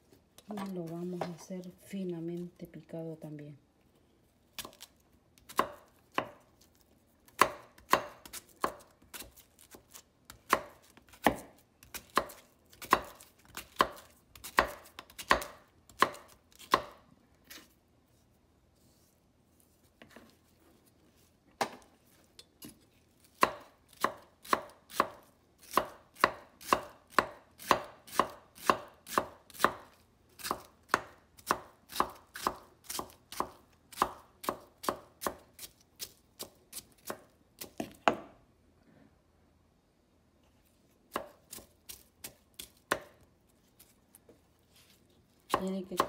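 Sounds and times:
knife chopping on cutting board: 5.5 - 6.4, 7.3 - 17.7, 23.4 - 38.3, 41.1 - 43.2.

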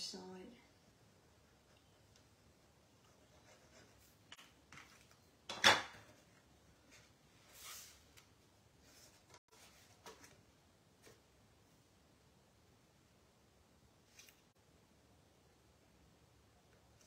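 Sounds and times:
paper swishing: 7.4 - 8.2.

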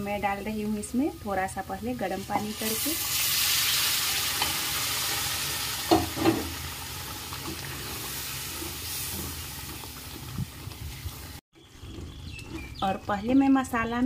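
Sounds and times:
food sizzling in a pan: 0.1 - 11.4.

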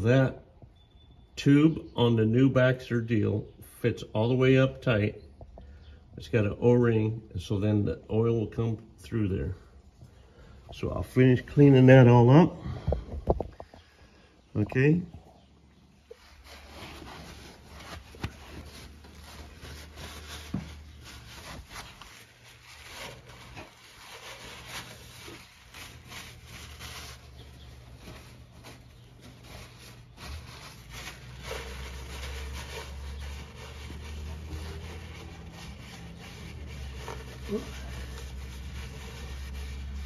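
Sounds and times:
cloth rag scrubbing: 16.1 - 40.0.

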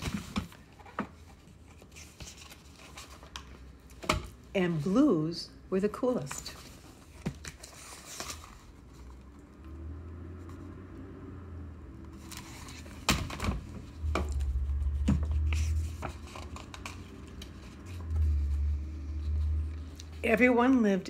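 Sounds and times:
book handling knocks and rustles: 0.0 - 4.4, 12.2 - 17.8
low rumble: 13.6 - 20.1.

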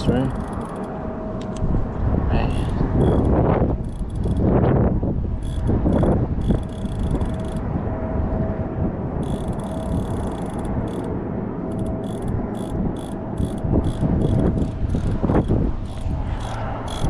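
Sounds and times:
strong wind buffeting microphone: 0.0 - 17.0
high-pitched clicking or buzzing: 0.3 - 1.7, 3.0 - 4.7, 5.4 - 7.6, 9.2 - 11.1, 11.7 - 17.0.

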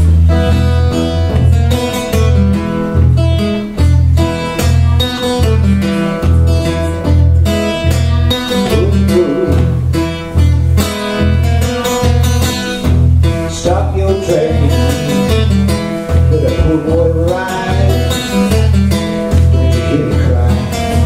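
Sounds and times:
acoustic guitar blues riff: 0.0 - 21.0
man singing sliding vocal lines: 8.1 - 9.8, 13.4 - 21.0.

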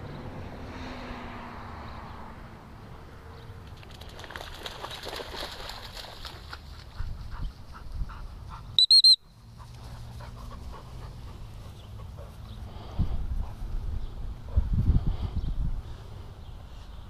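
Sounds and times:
dog splashing in puddle: 3.6 - 7.0
dog panting: 6.8 - 8.8, 9.5 - 12.6
dog whistle blast: 8.8 - 9.2.

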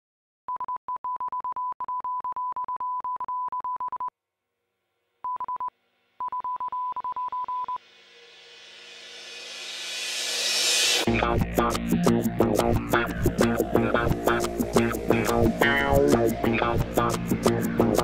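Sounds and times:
morse code beeping: 5.3 - 7.8
rising hissing swell: 7.8 - 18.0.

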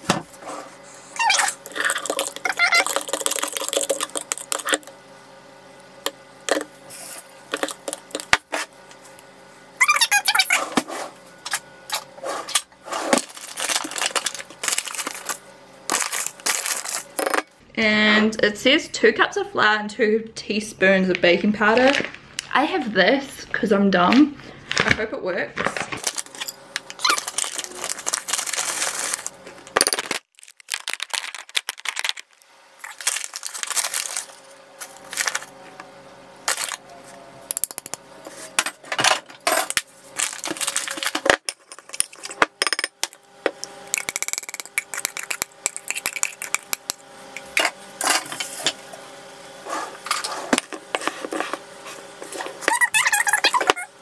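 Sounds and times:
scraping scoops: 10.4 - 17.2, 26.0 - 29.5.

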